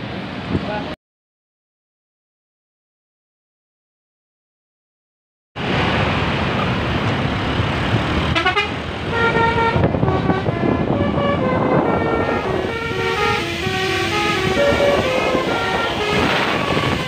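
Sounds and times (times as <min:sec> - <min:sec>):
traffic and engine noise: 0:00.0 - 0:01.0, 0:05.6 - 0:17.0
multi-tone bus air horn tune: 0:08.3 - 0:17.0.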